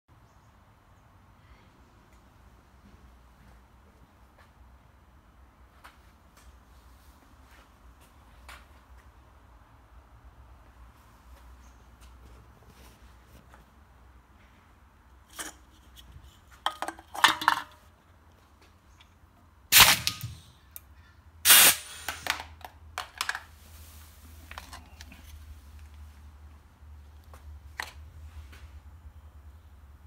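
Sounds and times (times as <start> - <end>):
can clattering into metal chute: 16.7 - 17.8
air cylinder firing with bang: 19.7 - 20.4, 21.5 - 22.2
air exhausting blast: 21.4 - 22.2.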